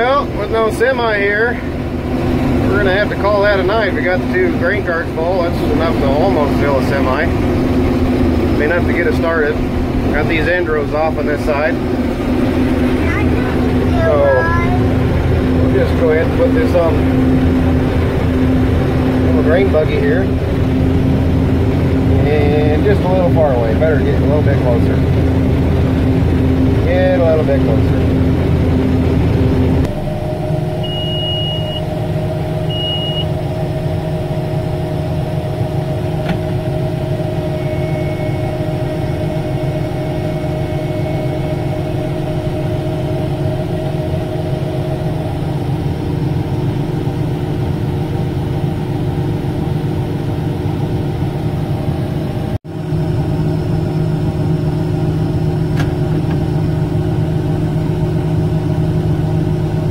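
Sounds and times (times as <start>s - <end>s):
combine machinery drone: 0.0s - 59.9s
short electronic beeps: 30.8s - 31.9s, 32.7s - 33.4s, 37.5s - 38.7s.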